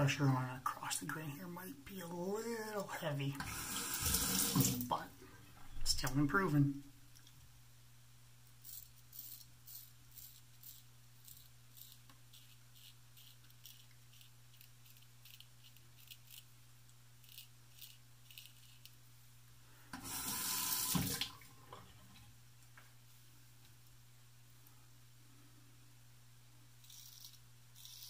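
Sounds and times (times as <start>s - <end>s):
sink tap running: 3.4s - 4.9s, 20.0s - 21.4s
razor scraping stubble: 8.6s - 16.5s, 17.2s - 19.0s, 26.8s - 28.0s.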